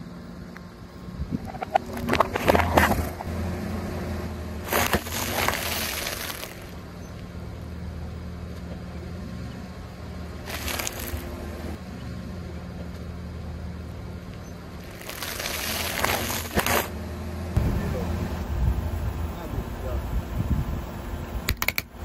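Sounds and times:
car engine idling: 0.0s - 22.0s
tyre crushing plastic packet: 4.6s - 6.8s, 10.5s - 11.3s, 14.8s - 16.9s.

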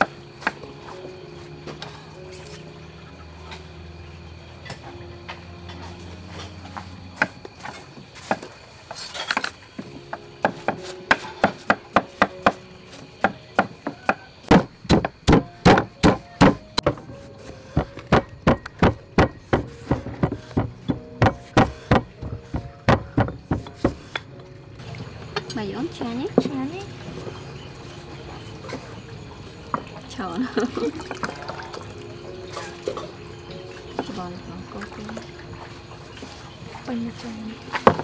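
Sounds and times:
knife chopping on wooden board: 10.4s - 12.6s, 13.2s - 17.0s, 17.8s - 24.2s
pestle pounding in stone mortar: 10.4s - 12.6s, 13.2s - 17.1s, 17.8s - 24.2s.

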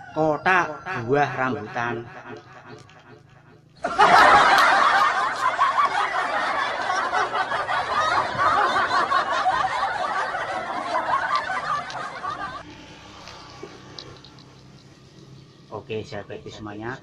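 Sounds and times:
canned laughter: 0.5s - 12.6s.

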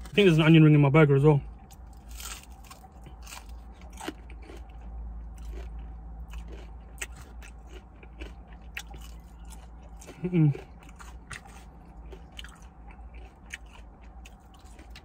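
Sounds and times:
person chewing crispy food: 1.6s - 15.0s.

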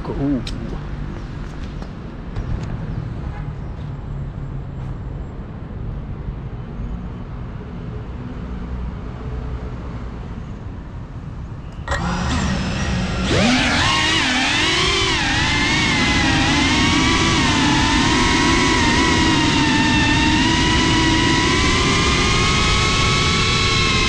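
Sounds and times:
quadcopter motors whining: 11.8s - 24.0s.

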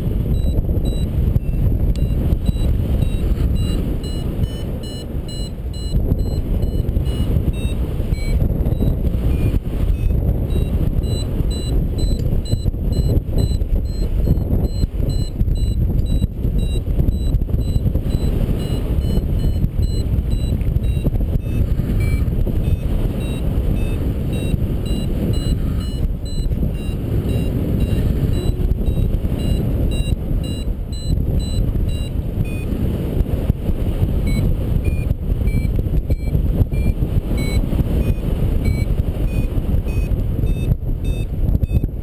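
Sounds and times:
variometer beeping in short pips: 0.0s - 32.8s, 34.2s - 42.0s
airflow rushing on microphone: 0.0s - 42.0s.

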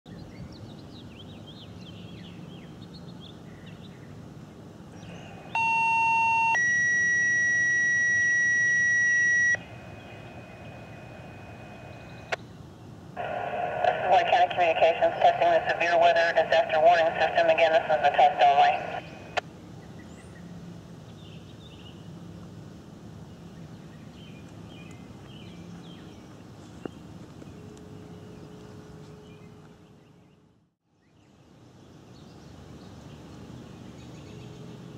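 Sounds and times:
low steady hum: 0.1s - 34.9s
birds chirping: 4.9s - 20.5s, 23.2s - 34.7s
two-tone alert signal: 5.6s - 9.6s.

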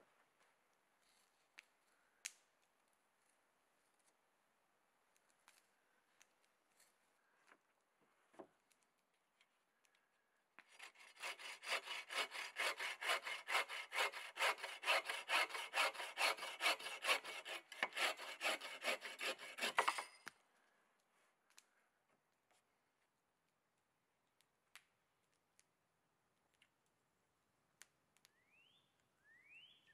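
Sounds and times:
hand saw cutting wood: 10.7s - 20.2s.

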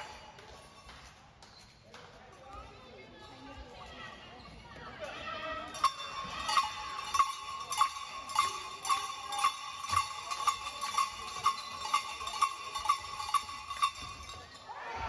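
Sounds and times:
bell struck in steady beat: 5.7s - 14.7s.

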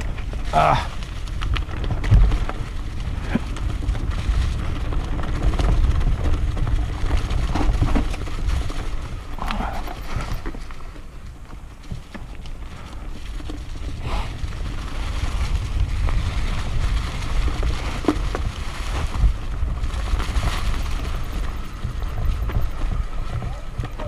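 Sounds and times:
bike clicks and rattles: 0.0s - 24.0s
bike tyres rumbling on dirt: 0.0s - 24.0s
wind on microphone: 12.6s - 24.0s.

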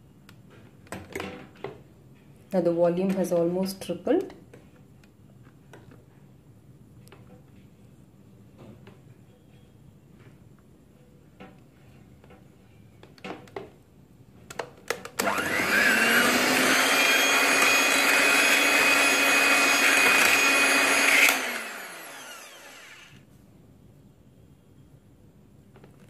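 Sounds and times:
electric hand mixer whining: 15.2s - 23.2s.

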